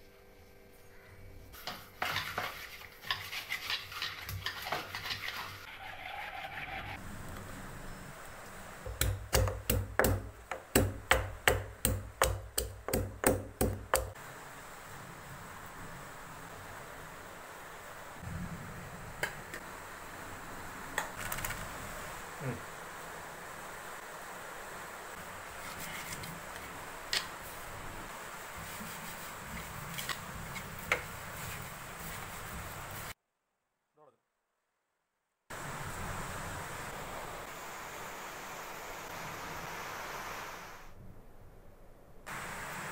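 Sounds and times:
steady background hiss: 0:07.0 - 0:33.2, 0:35.5 - 0:42.9
pestle pounding in stone mortar: 0:08.9 - 0:14.2
hand rubbing spice into fish: 0:28.6 - 0:33.1.

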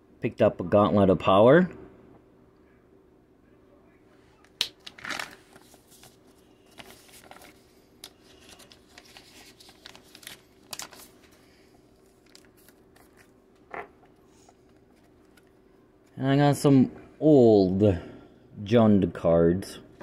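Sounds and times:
paper envelope crinkling: 0:04.8 - 0:13.7.

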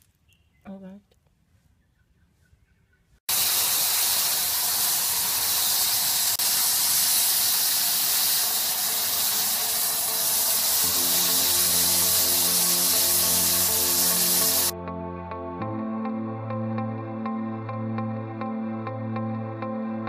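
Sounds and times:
paint spray gun hissing: 0:03.3 - 0:14.7
music: 0:09.0 - 0:20.0.

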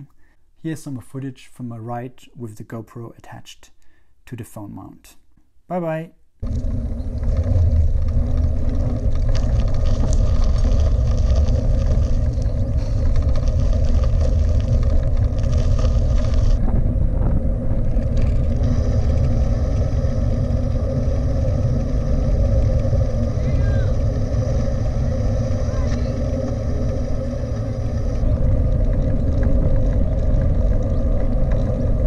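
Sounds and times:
road rumble: 0:06.4 - 0:32.0
wind buffeting: 0:06.4 - 0:32.0.

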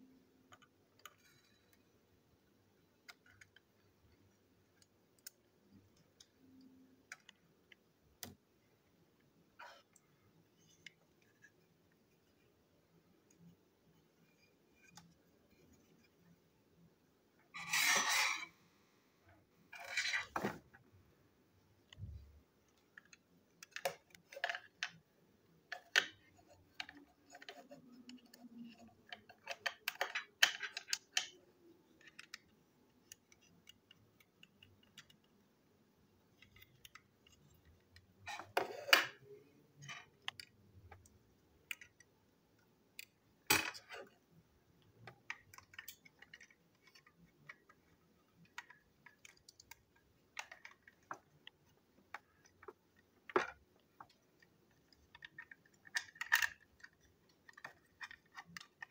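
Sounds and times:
plastic toy clicks and scrapes: 0:48.4 - 0:58.9.

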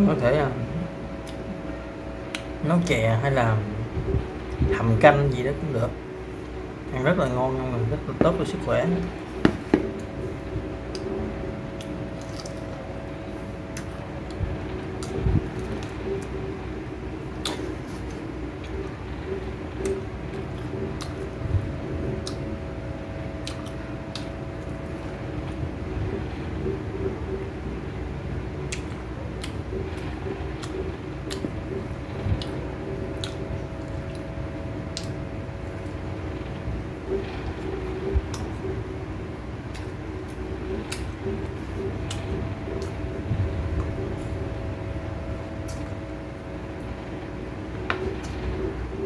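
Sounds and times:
faint steady hum: 0:00.0 - 0:49.0
person chewing: 0:09.3 - 0:12.9, 0:13.6 - 0:16.4, 0:17.3 - 0:21.4, 0:23.4 - 0:25.6, 0:28.7 - 0:34.3, 0:39.6 - 0:43.1
small mouth clicks: 0:17.4 - 0:18.2
person chewing with wet mouth clicks: 0:17.4 - 0:19.0, 0:20.6 - 0:21.3, 0:23.4 - 0:24.3, 0:28.7 - 0:30.0, 0:30.6 - 0:32.6, 0:33.2 - 0:34.3, 0:34.9 - 0:35.2, 0:39.7 - 0:43.0.

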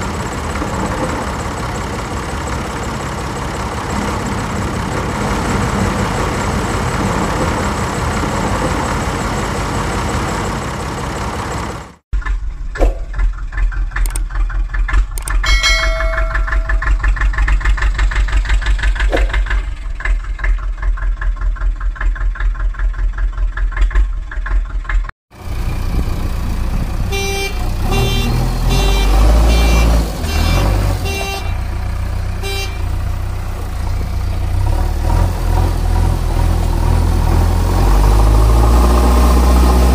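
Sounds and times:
rhythmic chugging engine: 0:00.0 - 0:12.4, 0:13.1 - 0:34.6
rushing engine noise: 0:00.0 - 0:22.3, 0:24.2 - 0:39.9
horn-like toots: 0:27.1 - 0:31.7, 0:32.4 - 0:32.9.

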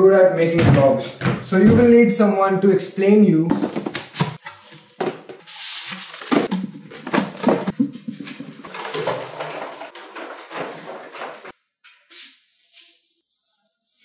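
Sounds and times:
rolled paper rustling: 0:03.8 - 0:11.6.

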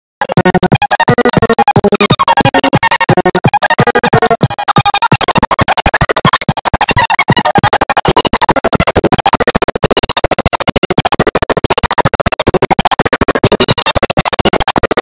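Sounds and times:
music with fast choppy beat: 0:00.2 - 0:15.0.

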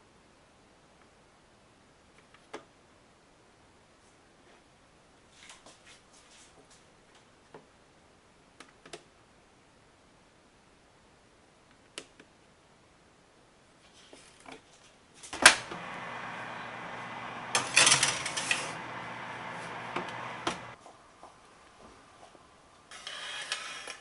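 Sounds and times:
oven fan humming: 0:15.4 - 0:20.8
metal pan scraping on wire rack: 0:17.5 - 0:18.8.

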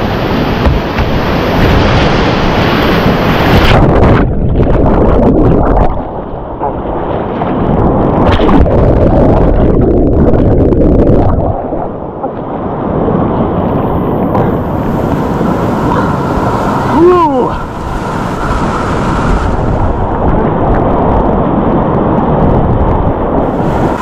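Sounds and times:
wind buffeting microphone: 0:00.0 - 0:24.0
rushing whitewater splashing: 0:13.4 - 0:21.3, 0:23.2 - 0:24.0.

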